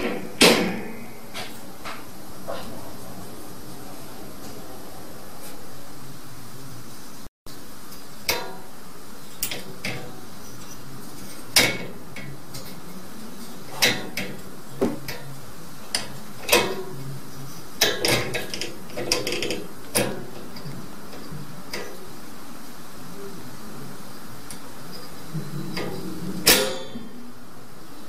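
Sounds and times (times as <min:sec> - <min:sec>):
steady hiss: 0:00.0 - 0:28.0
metal latch and cage door rattling: 0:17.8 - 0:20.4.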